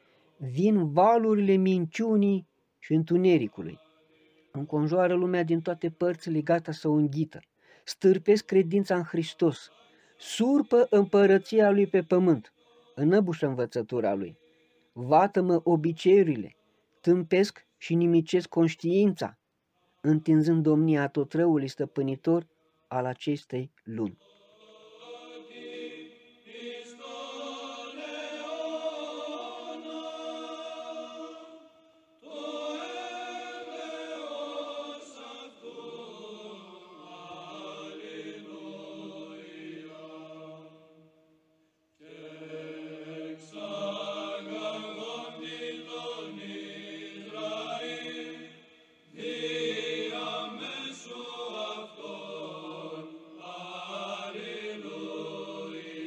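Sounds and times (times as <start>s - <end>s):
choir chanting: 3.4s - 6.4s, 9.0s - 15.0s, 24.1s - 41.4s, 42.0s - 56.0s.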